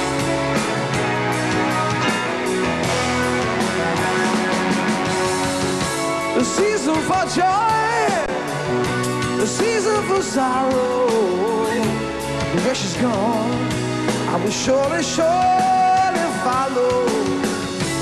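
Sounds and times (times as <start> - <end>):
live rock band playing: 0.0 - 18.0
man singing: 6.3 - 17.6.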